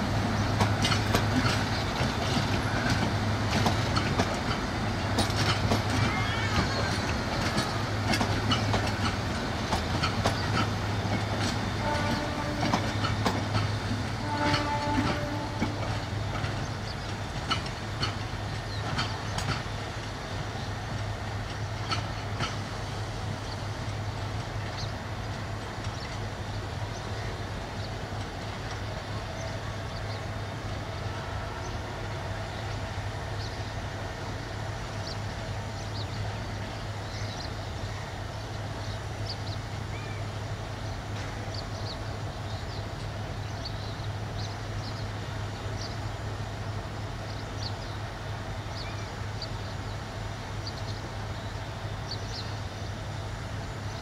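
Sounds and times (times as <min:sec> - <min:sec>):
train low rumble: 0:00.0 - 0:54.0
train wheels clacking over joints: 0:00.3 - 0:26.3.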